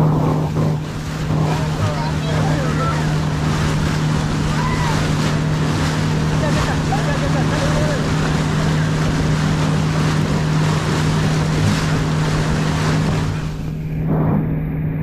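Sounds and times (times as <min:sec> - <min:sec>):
wind and water rushing: 0:00.0 - 0:14.8
boat engine drone: 0:00.0 - 0:15.0.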